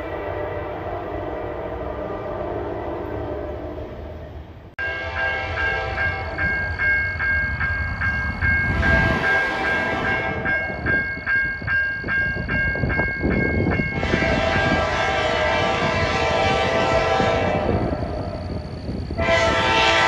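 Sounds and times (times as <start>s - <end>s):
railroad crossing bell ringing: 4.8s - 20.0s.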